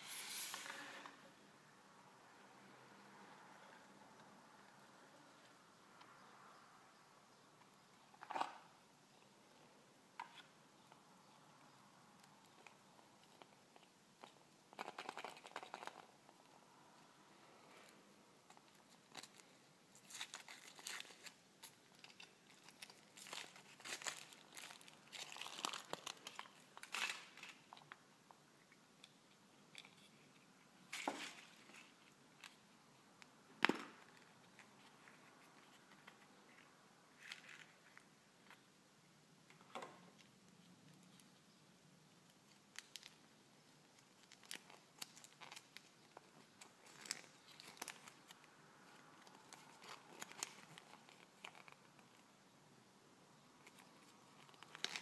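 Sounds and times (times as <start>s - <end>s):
foil wrapper crinkling: 18.5s - 27.8s, 43.9s - 48.5s, 49.2s - 52.2s, 53.6s - 55.0s.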